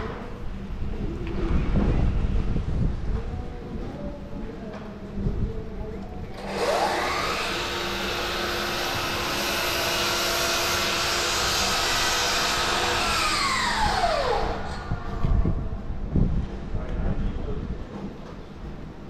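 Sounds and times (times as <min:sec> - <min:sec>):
electric blower motor whining: 0:06.3 - 0:15.7.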